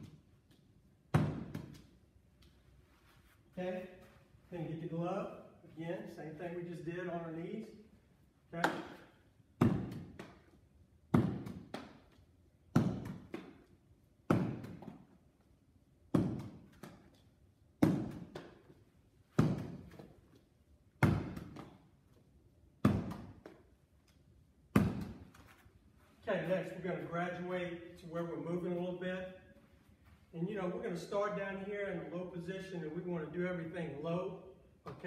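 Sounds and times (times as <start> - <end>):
ball caught in leather glove: 21.0 - 21.8, 24.7 - 25.3.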